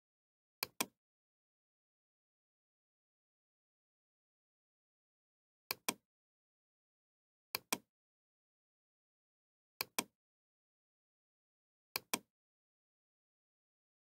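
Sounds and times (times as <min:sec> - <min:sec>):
computer mouse button clicking: 0:00.6 - 0:01.0, 0:05.7 - 0:06.0, 0:07.6 - 0:07.8, 0:09.8 - 0:10.1, 0:12.0 - 0:12.3.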